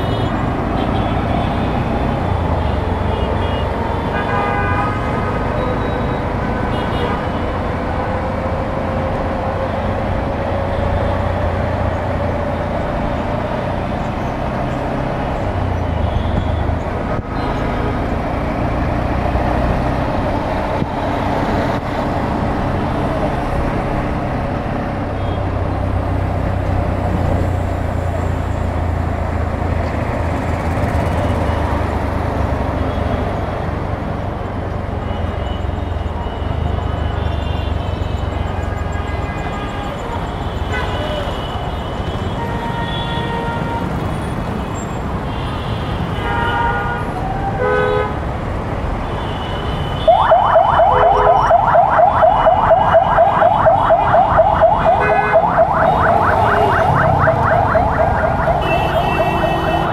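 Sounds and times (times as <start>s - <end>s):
traffic engines and road noise: 0.0s - 59.9s
vehicle horns honking: 2.6s - 7.5s, 35.1s - 48.2s, 54.8s - 57.0s, 58.4s - 59.9s.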